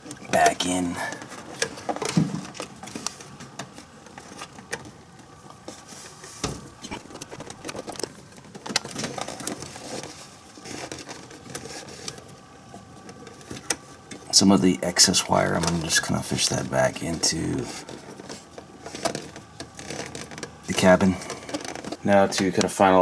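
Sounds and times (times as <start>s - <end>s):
rustling: 0.0s - 14.6s.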